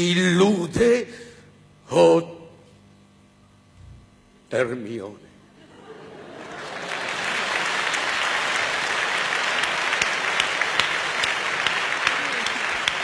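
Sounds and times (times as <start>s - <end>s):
audience applauding: 6.1s - 13.0s.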